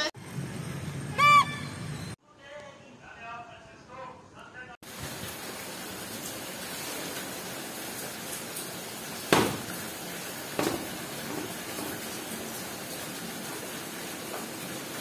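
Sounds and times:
sharp knocks: 9.3 - 9.8, 10.6 - 11.0.

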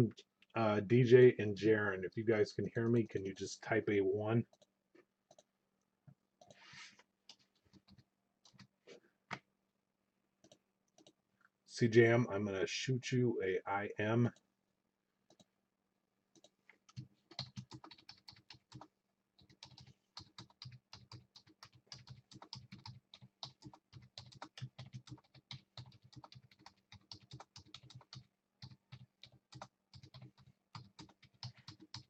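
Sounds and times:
faint keyboard typing: 5.3 - 5.5, 6.4 - 6.6, 7.2 - 9.4, 10.4 - 11.2, 15.3 - 15.5, 16.3 - 32.0.

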